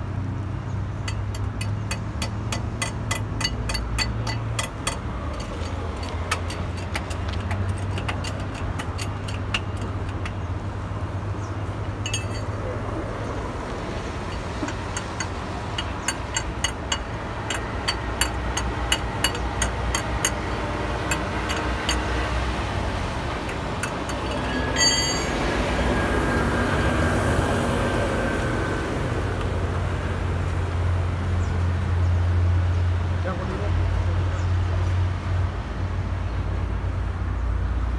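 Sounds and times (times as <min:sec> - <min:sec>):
traffic rumble: 0:00.0 - 0:37.9
ringing metal clink: 0:01.1 - 0:10.4, 0:12.0 - 0:12.7, 0:14.3 - 0:22.3, 0:23.8 - 0:25.6
sharp metal tool clicks: 0:01.1 - 0:10.4, 0:14.6 - 0:22.2.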